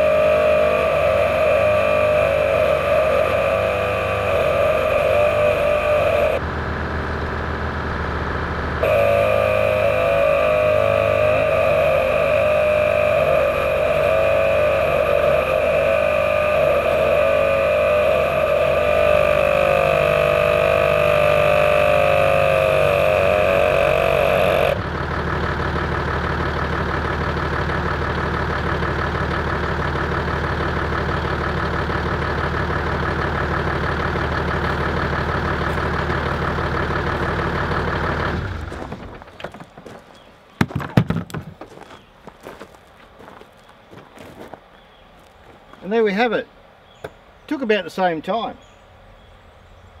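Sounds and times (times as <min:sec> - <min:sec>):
air compressor running: 0:00.0 - 0:25.1
engine idling: 0:00.0 - 0:43.4.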